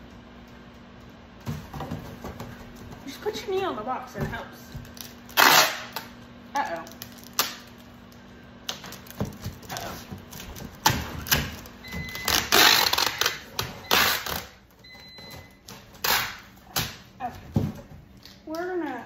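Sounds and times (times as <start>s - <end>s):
packing tape tearing: 4.8s - 7.9s, 8.6s - 14.6s, 15.6s - 17.1s
tape dispenser knocking on box: 5.3s - 6.0s, 10.4s - 14.5s.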